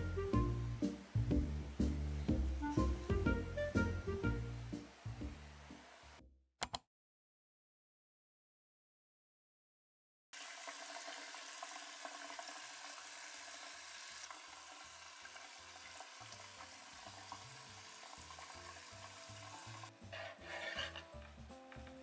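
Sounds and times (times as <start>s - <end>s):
knife cutting tofu: 20.1s - 21.3s.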